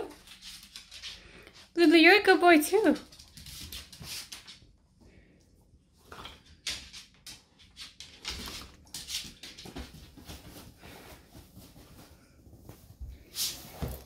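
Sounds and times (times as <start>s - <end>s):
paws and claws on hardwood: 0.0s - 1.8s, 2.9s - 4.8s, 6.0s - 14.0s.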